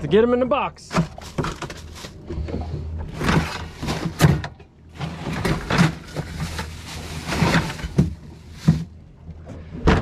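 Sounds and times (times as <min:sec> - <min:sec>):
plastic bags and ice rustling: 0:00.8 - 0:02.3, 0:03.0 - 0:09.1.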